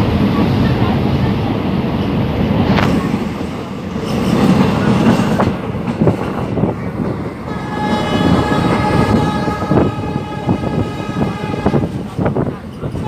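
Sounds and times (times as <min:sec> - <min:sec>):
train wheels rumbling on rails: 0:00.0 - 0:13.0
locomotive horn blast: 0:07.5 - 0:12.0.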